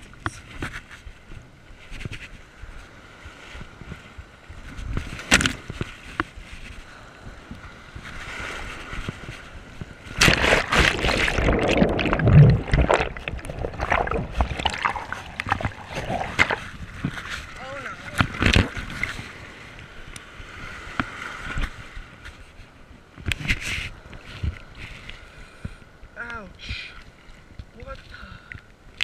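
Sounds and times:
rush of churning water: 2.6s - 29.0s
ocean surf breaking: 6.9s - 22.0s
water splashing: 10.0s - 19.4s.

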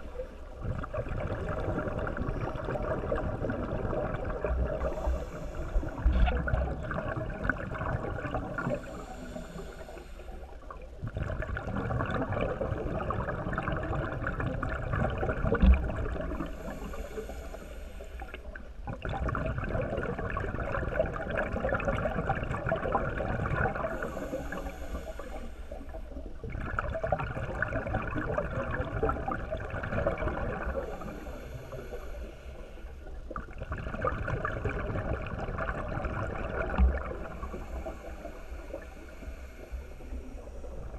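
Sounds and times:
exhaled bubbles rushing: 0.0s - 9.7s, 10.7s - 16.8s, 18.3s - 24.6s, 25.9s - 31.2s, 33.0s - 40.9s
regulator inhale hiss: 4.6s - 6.3s, 8.6s - 10.8s, 16.3s - 18.7s, 23.8s - 26.3s, 30.6s - 33.3s, 37.2s - 40.9s.

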